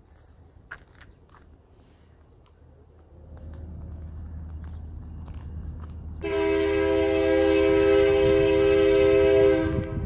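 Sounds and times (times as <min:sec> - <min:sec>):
diesel locomotive engine rumble: 0:00.0 - 0:10.0
train air horn blast: 0:06.2 - 0:10.0.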